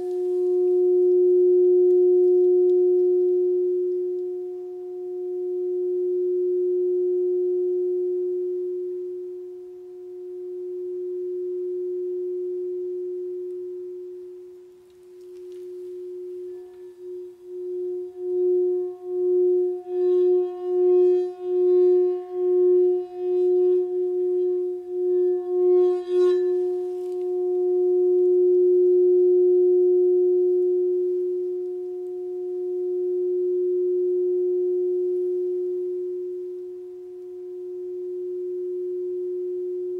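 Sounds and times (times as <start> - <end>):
wand rubbing bowl rim: 0.0 - 0.7, 14.9 - 27.8
singing bowl ringing: 0.0 - 39.9.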